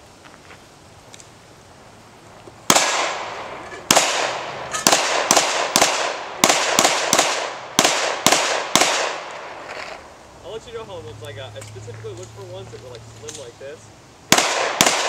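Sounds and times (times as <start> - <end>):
handgun shots echoing: 2.7 - 9.5, 14.3 - 15.0.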